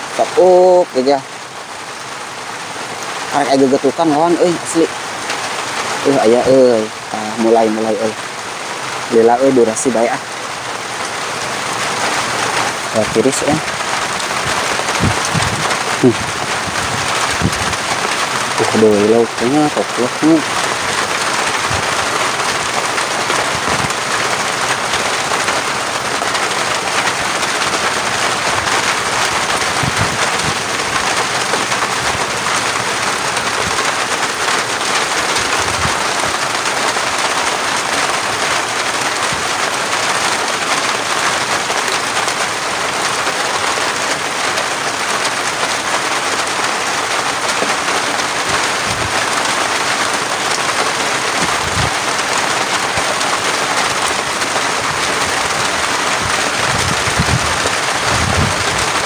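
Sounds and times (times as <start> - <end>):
steady rain falling: 0.0 - 59.0
dull low thumps: 14.5 - 17.8.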